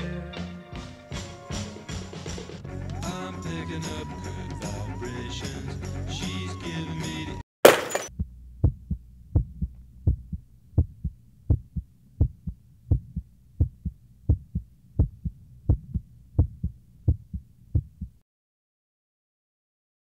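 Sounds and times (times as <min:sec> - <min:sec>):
heartbeat thumps: 0:08.1 - 0:18.2.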